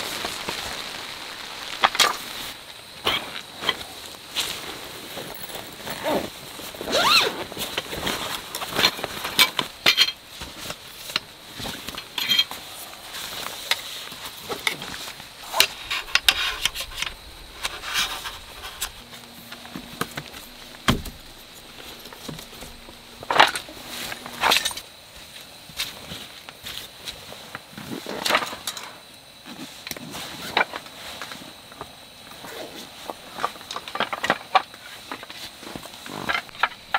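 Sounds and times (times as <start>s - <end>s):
insect trill: 0.0s - 36.9s
canvas bags rustling: 3.2s - 24.8s.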